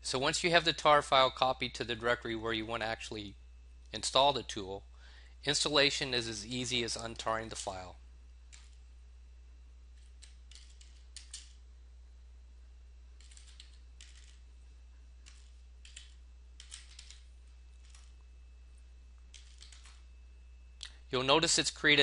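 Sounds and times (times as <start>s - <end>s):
steady low hum: 0.0s - 22.0s
keyboard typing: 8.5s - 8.8s, 10.0s - 11.6s, 13.2s - 14.5s, 15.2s - 18.2s, 19.2s - 20.1s.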